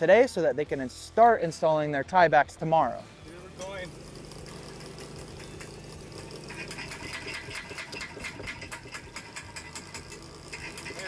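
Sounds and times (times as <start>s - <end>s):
hydraulic power unit hum: 3.1s - 11.0s
hydraulic drive head turning: 3.6s - 11.0s.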